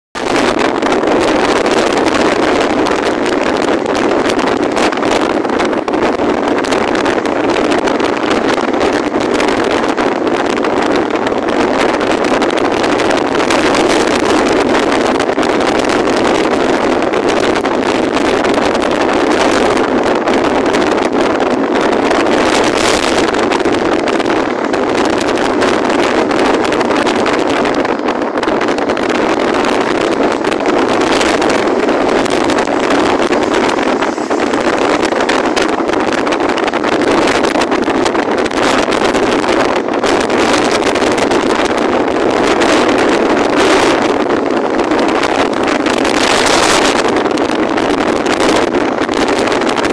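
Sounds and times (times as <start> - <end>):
strong wind gusting: 0.2 - 49.9.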